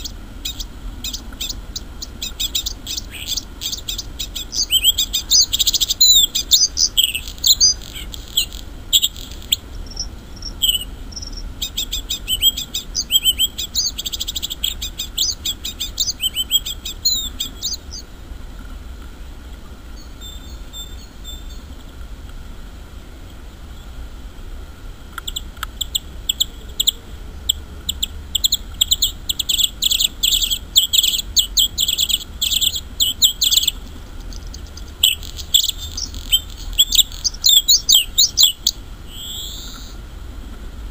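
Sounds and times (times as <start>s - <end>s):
bird singing trills: 0.0s - 18.1s, 20.0s - 21.8s, 25.2s - 40.0s.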